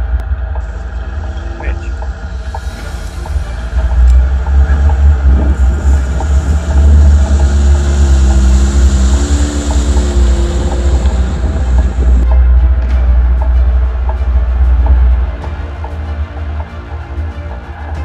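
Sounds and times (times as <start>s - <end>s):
car engine running under load: 0.0s - 12.2s
heavy low rumble: 0.0s - 17.8s.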